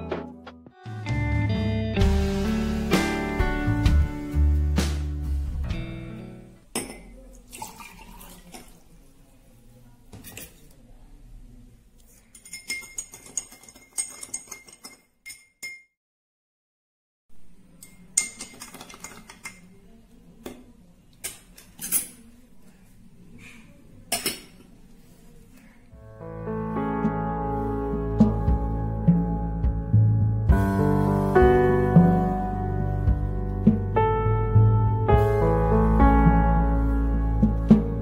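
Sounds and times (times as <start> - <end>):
water pouring: 7.4 - 9.0
metal spoon clinking against glass: 12.3 - 15.9, 17.8 - 19.7.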